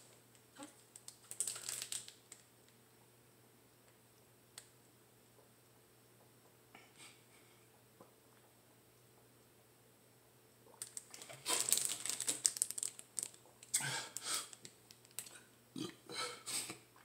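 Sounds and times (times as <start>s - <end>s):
plastic water jug crinkling: 0.6s - 2.5s, 10.7s - 13.8s, 14.5s - 15.4s.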